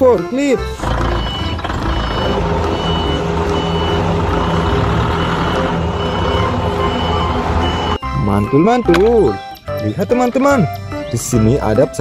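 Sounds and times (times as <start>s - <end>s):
forklift engine running: 0.6s - 9.7s
reversing alarm beeps: 1.0s - 8.6s.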